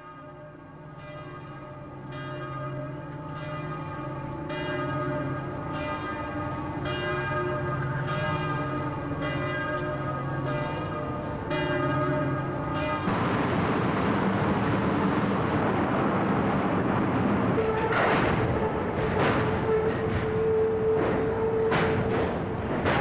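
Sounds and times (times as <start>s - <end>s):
bells ringing: 0.9s - 13.1s.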